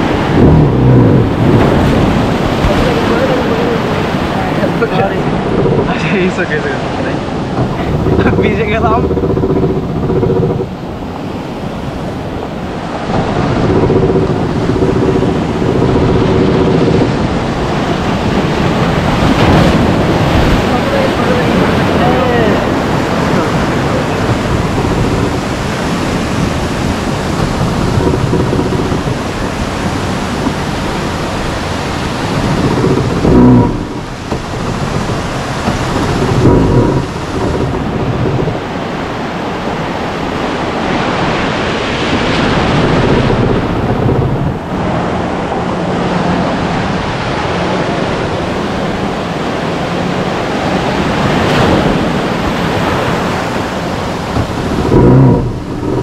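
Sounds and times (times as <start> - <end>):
ocean surf: 0.0 - 56.0
wind buffeting microphone: 0.0 - 56.0.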